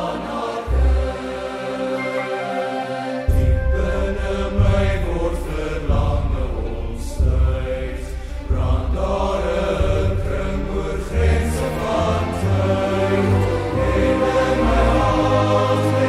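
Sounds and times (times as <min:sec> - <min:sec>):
choir singing: 0:00.0 - 0:16.0
produced accompaniment: 0:00.0 - 0:16.0
deep bass notes: 0:03.3 - 0:15.8.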